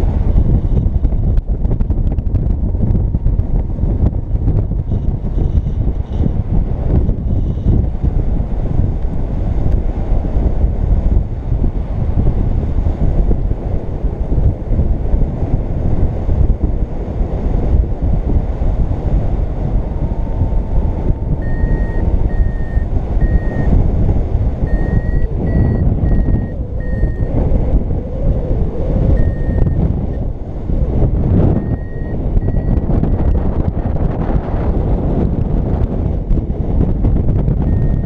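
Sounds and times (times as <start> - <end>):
wind rushing over microphone: 0.0 - 38.0
variometer high beeps: 21.2 - 23.7, 24.6 - 27.4, 29.1 - 29.8, 31.5 - 33.5, 37.7 - 38.0.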